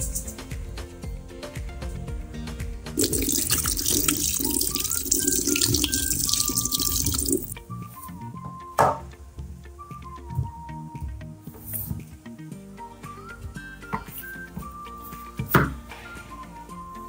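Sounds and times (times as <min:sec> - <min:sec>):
water splashing in a sink: 0:03.0 - 0:07.6.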